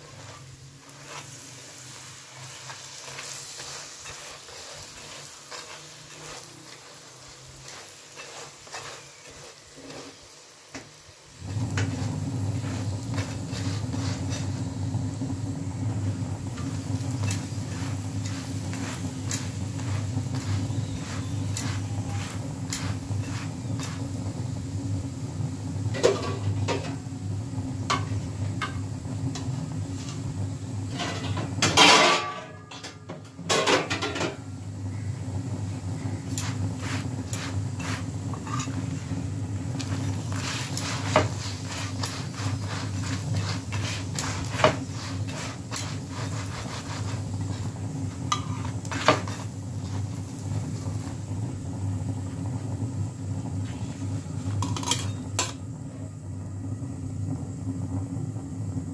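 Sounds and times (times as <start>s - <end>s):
metal tongs clattering on pan: 7.6s - 9.5s, 48.3s - 49.4s, 54.6s - 55.6s
steady low hum: 11.4s - 31.8s.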